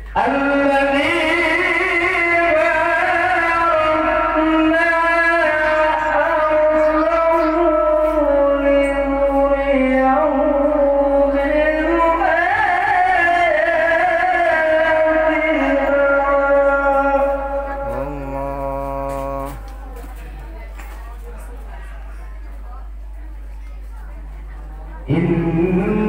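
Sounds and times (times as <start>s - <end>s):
man chanting into a microphone: 0.0s - 19.8s, 25.0s - 26.0s.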